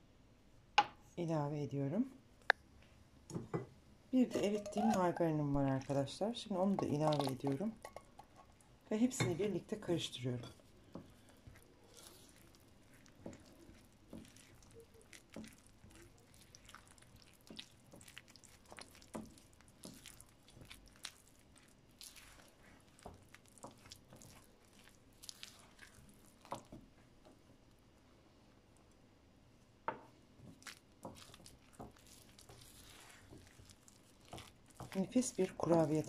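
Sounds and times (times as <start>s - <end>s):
spatula stirring dough in a bowl: 4.2s - 27.7s, 30.1s - 36.0s.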